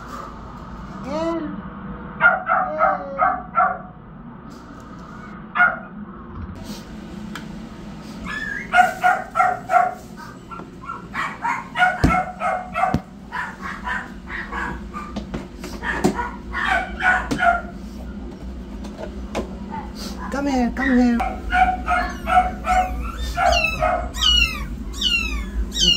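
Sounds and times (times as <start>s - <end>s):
newborn kittens mewing: 22.0s - 25.9s.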